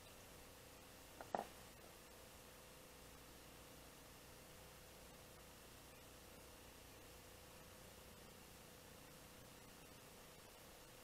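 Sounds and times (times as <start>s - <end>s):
faint background hiss: 0.0s - 11.0s
faint steady hum: 0.0s - 11.0s.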